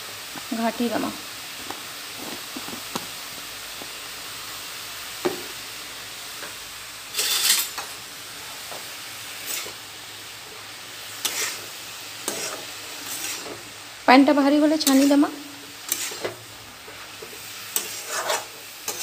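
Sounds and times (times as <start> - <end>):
mushrooms sizzling in a pan: 0.0 - 19.0
metal spatula scraping pan: 7.1 - 7.8, 9.4 - 9.8, 11.2 - 13.6, 14.7 - 19.0.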